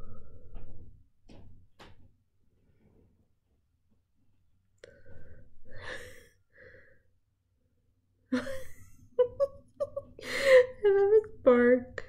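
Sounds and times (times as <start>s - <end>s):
loud breath or laugh: 10.2s - 10.8s.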